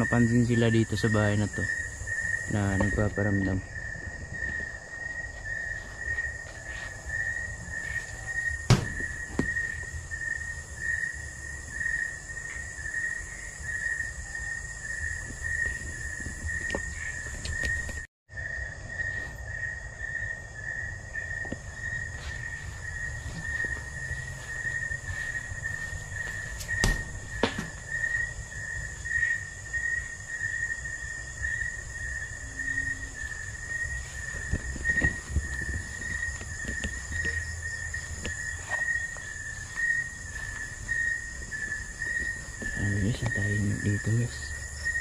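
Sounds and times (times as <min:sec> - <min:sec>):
high insect hiss: 0:00.0 - 0:45.0
insects trilling: 0:00.0 - 0:45.0
handheld camera rumble: 0:33.2 - 0:45.0.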